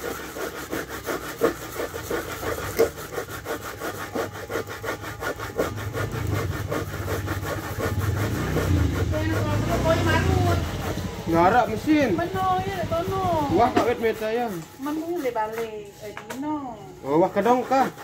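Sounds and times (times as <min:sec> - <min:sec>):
coconut scraping on grater: 0:00.0 - 0:18.0
low engine hum: 0:06.1 - 0:14.0.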